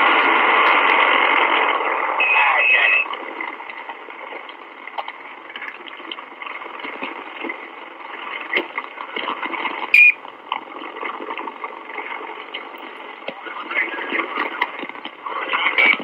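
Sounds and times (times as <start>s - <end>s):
radio static hiss: 0.0s - 6.8s, 9.8s - 10.4s, 11.9s - 16.0s
crackles and clicks: 0.0s - 16.0s
short high whistle: 10.0s - 10.2s.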